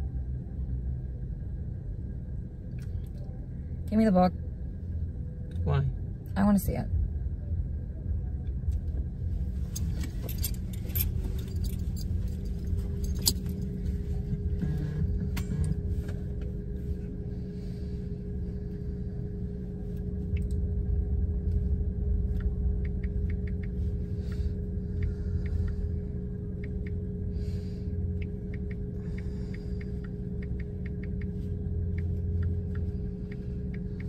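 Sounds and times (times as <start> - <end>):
car engine idling: 8.0 - 34.0.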